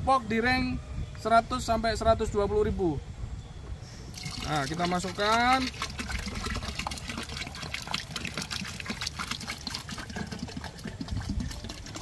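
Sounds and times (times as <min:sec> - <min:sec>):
liquid splashing into slurry: 0:04.1 - 0:12.0.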